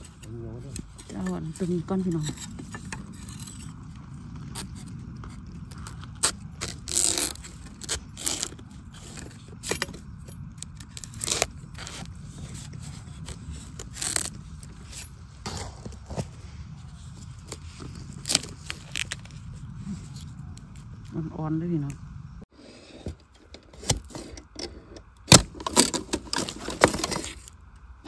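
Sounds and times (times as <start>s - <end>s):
low rumble: 0.0s - 22.5s
knife cutting bamboo shoot: 5.7s - 10.0s, 10.6s - 15.9s.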